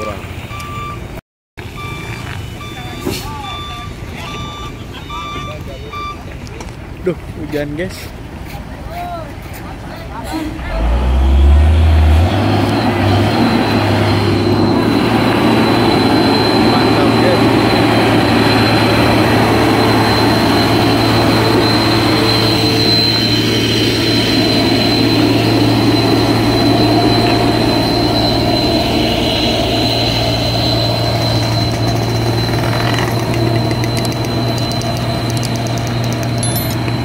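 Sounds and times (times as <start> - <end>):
heavy truck diesel engine labouring: 9.9 - 37.0
thin high whine: 10.4 - 37.0.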